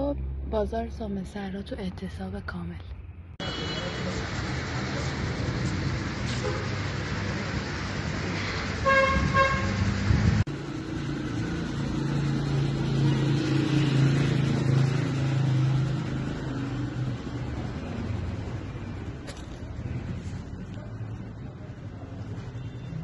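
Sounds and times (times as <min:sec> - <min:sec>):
traffic noise: 0:00.0 - 0:23.0
car horn toots: 0:08.8 - 0:09.8.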